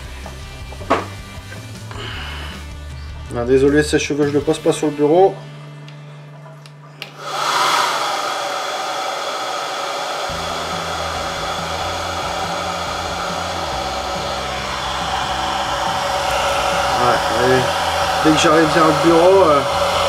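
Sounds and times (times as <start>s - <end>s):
hair dryer blowing: 7.0s - 20.0s
low rumble: 10.3s - 20.0s.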